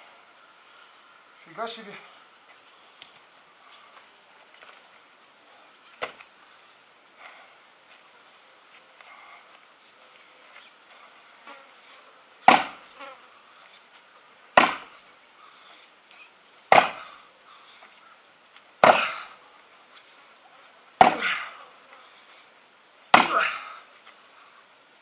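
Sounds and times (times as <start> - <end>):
axe chopping wood: 12.5 - 12.8, 14.6 - 14.9, 16.7 - 17.1, 18.8 - 19.2, 21.0 - 21.4, 23.1 - 23.5.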